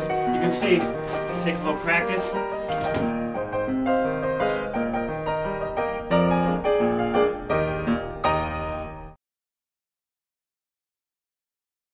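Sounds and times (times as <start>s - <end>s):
piano music: 0.0s - 9.2s.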